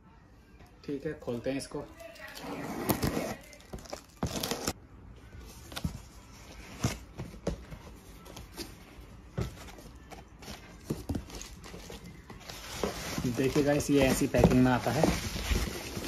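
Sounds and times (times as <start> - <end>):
cardboard knocks and scrapes: 9.4 - 16.0.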